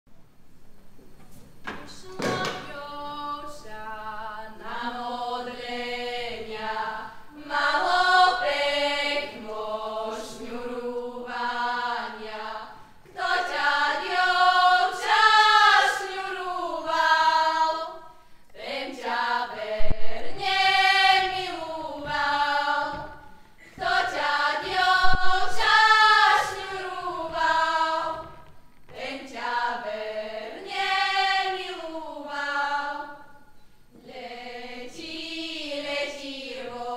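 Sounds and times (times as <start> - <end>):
young women singing folk song: 1.7 - 36.9.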